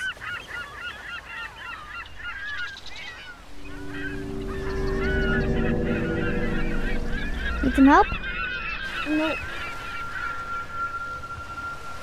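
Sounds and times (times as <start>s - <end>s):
geese honking: 2.0s - 11.9s
low rumbling drone: 3.2s - 12.0s.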